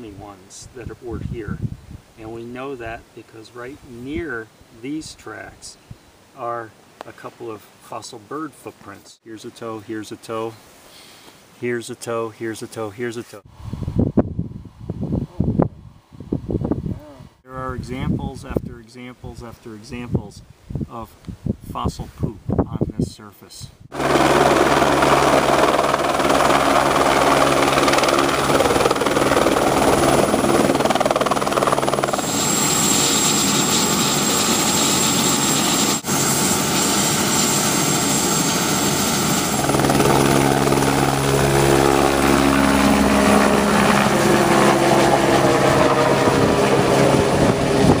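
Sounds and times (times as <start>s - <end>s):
helicopter rotor beating: 23.9s - 48.0s.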